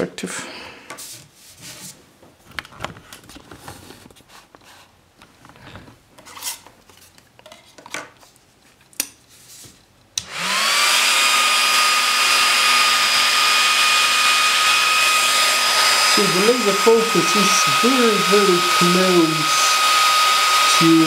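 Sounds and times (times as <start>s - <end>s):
electric motor whirring: 10.2s - 21.0s.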